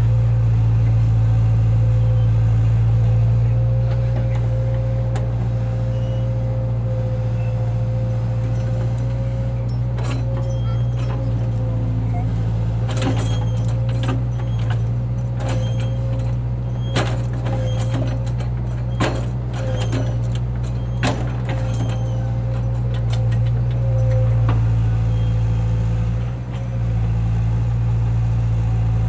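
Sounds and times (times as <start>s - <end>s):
heavy machine engine running: 0.0s - 29.0s
metallic clanks: 8.2s - 12.0s, 12.8s - 25.3s.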